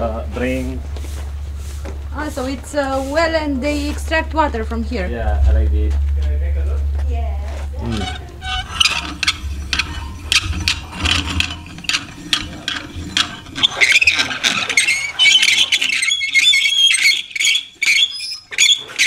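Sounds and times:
high squeal: 5.2 - 19.0
pulley squeaking and clicking: 7.8 - 19.0.

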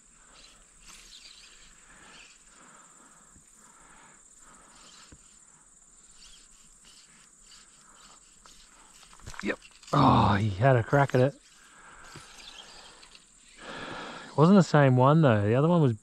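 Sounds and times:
insects chirring: 0.0 - 16.0
soft ticks and rustles: 4.8 - 10.0.

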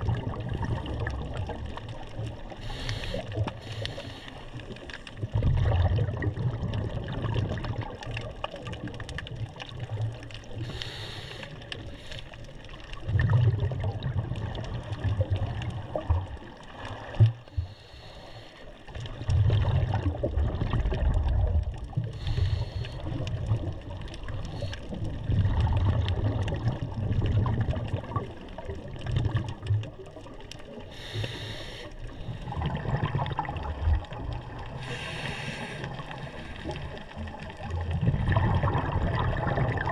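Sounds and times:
exhaled bubbles rumbling underwater: 0.0 - 39.9
regulator breath hiss: 2.6 - 4.5, 10.6 - 12.4, 17.6 - 18.7, 22.2 - 23.1, 30.9 - 32.4, 34.8 - 36.7.

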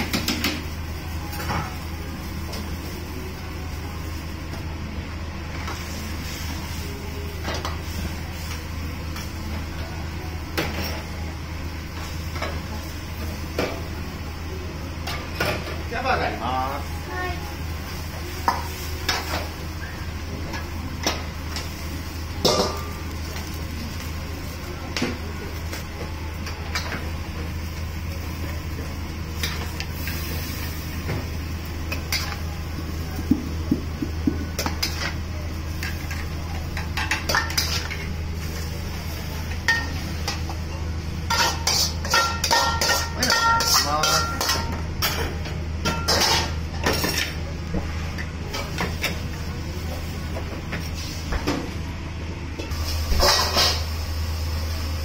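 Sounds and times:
metal ladle scraping in wok: 41.3 - 44.6.

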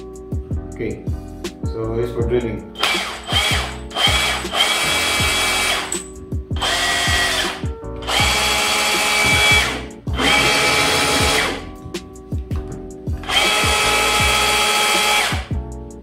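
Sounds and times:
rotary hammer drill running: 2.8 - 6.0, 6.6 - 11.6, 13.2 - 15.5.

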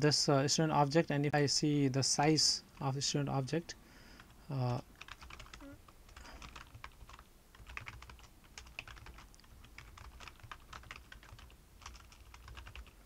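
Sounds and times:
keyboard typing: 4.6 - 13.0.

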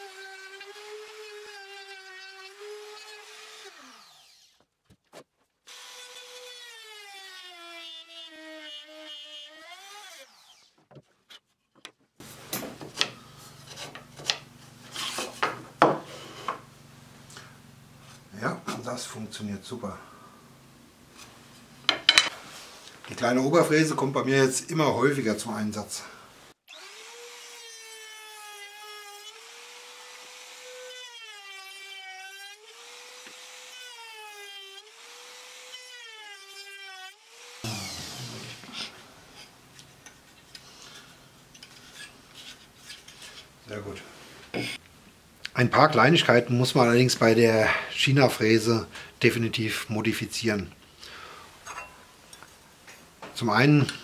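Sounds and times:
trim router whining: 37.3 - 39.2.

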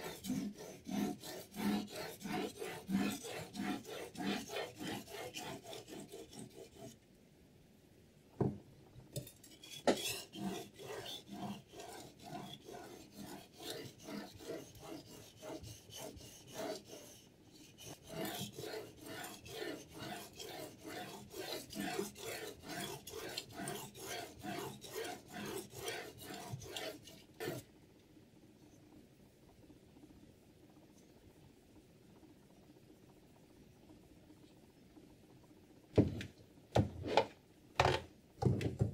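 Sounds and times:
whetstone rasping on knife blade: 9.4 - 16.9.

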